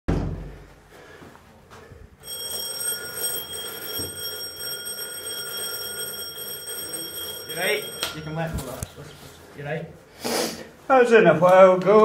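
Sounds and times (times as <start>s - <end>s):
high electronic ringing tone: 2.2s - 8.9s.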